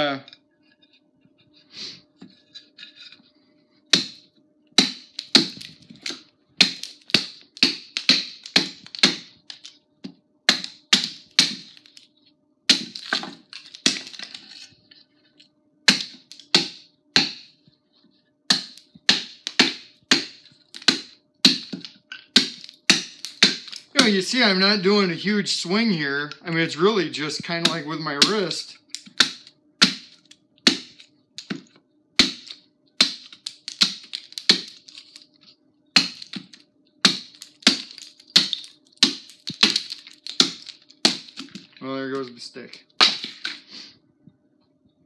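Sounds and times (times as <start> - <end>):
axe chopping wood: 3.9 - 4.2, 4.8 - 9.4, 10.5 - 11.9, 12.7 - 14.1, 15.9 - 17.5, 18.5 - 24.2, 27.6 - 31.6, 32.2 - 34.8, 36.0 - 41.6, 43.0 - 43.6.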